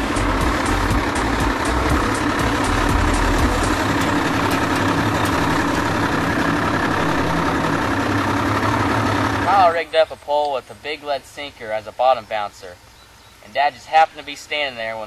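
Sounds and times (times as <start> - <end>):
boat engine running: 0.0 - 10.4.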